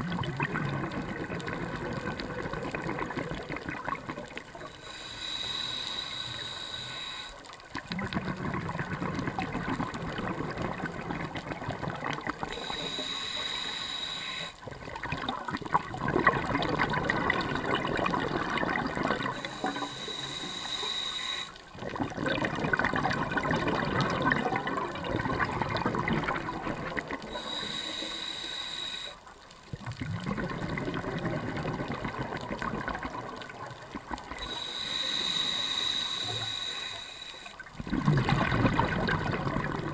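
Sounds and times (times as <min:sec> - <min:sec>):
exhaled bubbles rushing: 0:00.0 - 0:04.7, 0:07.8 - 0:12.7, 0:14.6 - 0:19.9, 0:21.7 - 0:27.5, 0:29.7 - 0:34.7, 0:37.6 - 0:39.9
regulator inhale whistling: 0:04.6 - 0:07.5, 0:12.5 - 0:14.6, 0:19.2 - 0:21.6, 0:27.3 - 0:29.3, 0:34.4 - 0:37.7.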